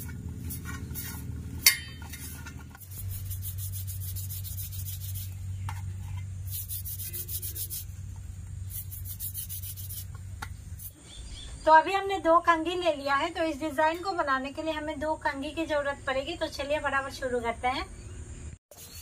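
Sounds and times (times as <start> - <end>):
sharp ringing clink: 1.6 - 2.0
palms rubbing dough: 2.2 - 10.9.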